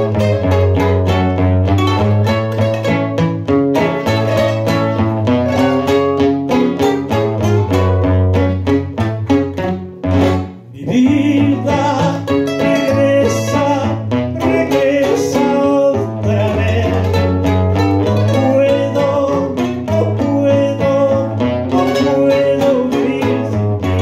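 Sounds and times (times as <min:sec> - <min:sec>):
acoustic guitars strumming: 0:00.0 - 0:24.0
men singing: 0:10.7 - 0:17.3, 0:18.3 - 0:24.0.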